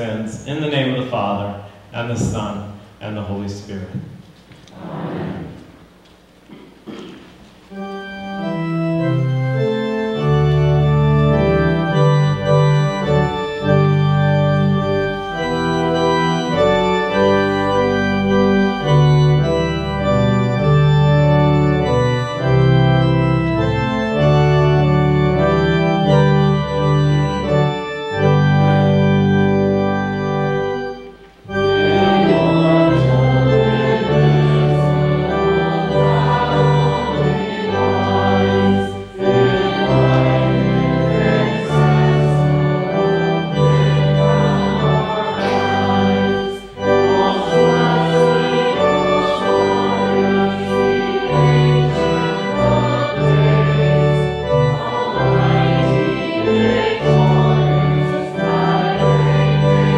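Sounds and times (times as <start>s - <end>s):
church organ playing hymn: 0.0s - 4.1s, 5.4s - 59.9s
people singing: 4.7s - 5.6s, 31.8s - 42.5s, 43.9s - 59.9s.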